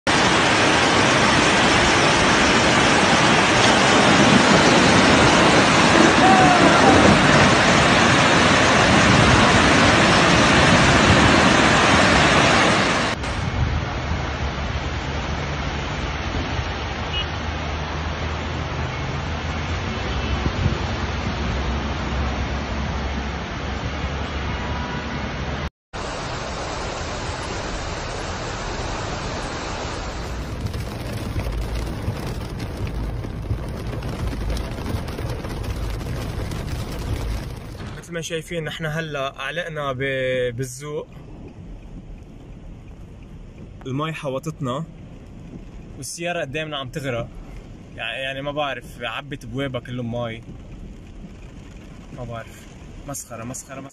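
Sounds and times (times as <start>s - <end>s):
flood torrent rushing: 0.1s - 24.9s, 26.0s - 39.8s
heavy rain: 0.1s - 40.2s, 41.0s - 53.9s
rain ticking on car: 30.1s - 38.1s, 41.1s - 53.8s.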